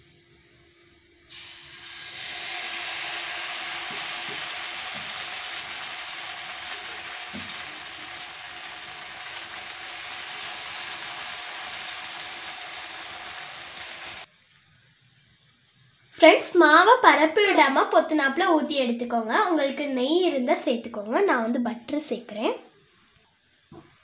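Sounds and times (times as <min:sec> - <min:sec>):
batter sizzling on hot griddle: 0:01.0 - 0:14.3.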